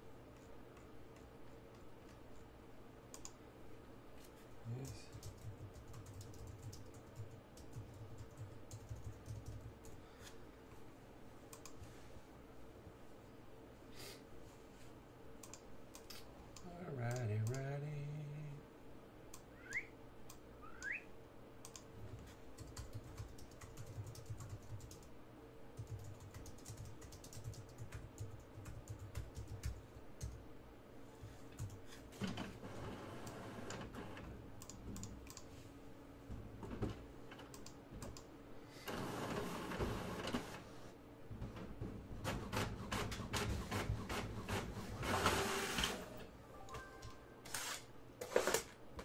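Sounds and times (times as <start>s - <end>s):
typing on a computer keyboard: 4.8s - 10.0s, 21.6s - 21.9s, 22.5s - 25.1s, 25.8s - 30.4s, 31.6s - 31.8s, 34.6s - 35.5s.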